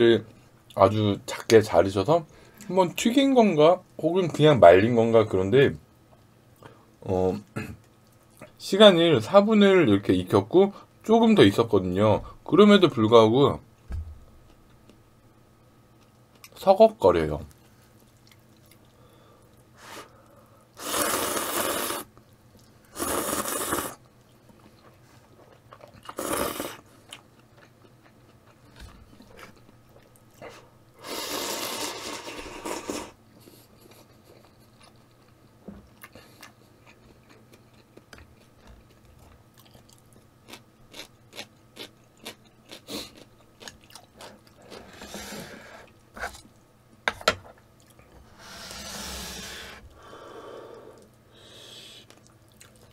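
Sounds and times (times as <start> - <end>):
soft chewing: 15.9 - 16.6, 17.5 - 19.8, 22.1 - 22.9, 24.0 - 26.2, 26.8 - 30.7, 33.3 - 44.8, 47.7 - 48.2, 52.0 - 52.9
noodles slurping: 20.8 - 22.1, 23.0 - 24.0.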